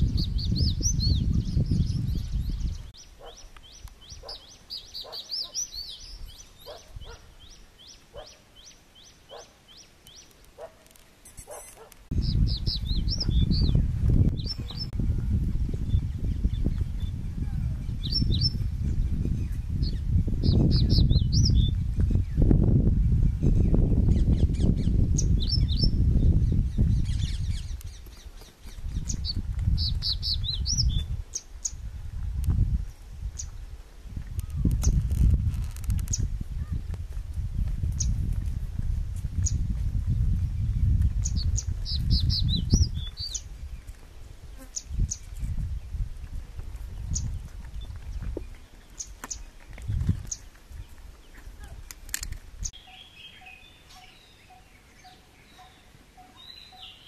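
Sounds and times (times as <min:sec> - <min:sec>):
lower bird calls: 0:00.0 - 0:15.2, 0:52.6 - 0:57.0.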